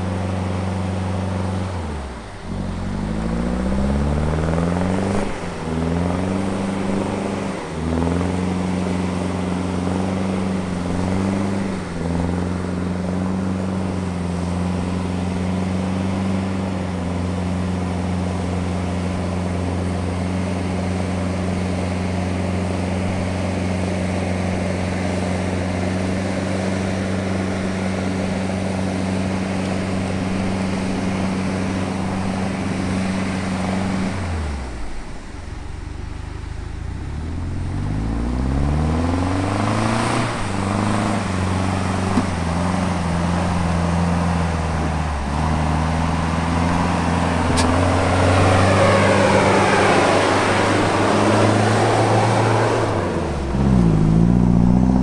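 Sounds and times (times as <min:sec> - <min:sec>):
vehicle engine droning: 0:00.0 - 0:55.0
water churned by wheels: 0:00.0 - 0:55.0.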